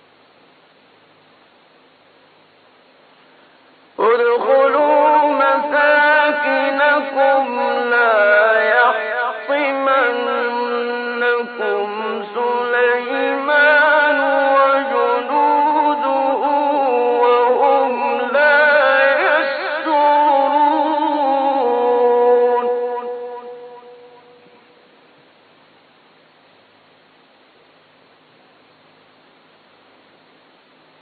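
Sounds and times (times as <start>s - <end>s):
man chanting melodically: 4.0s - 24.8s.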